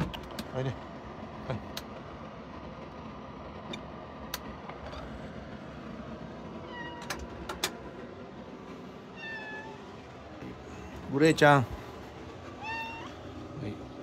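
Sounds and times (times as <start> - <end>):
steady background noise: 0.0 - 14.0
cat meowing: 6.6 - 7.3, 9.2 - 9.8, 12.6 - 13.2.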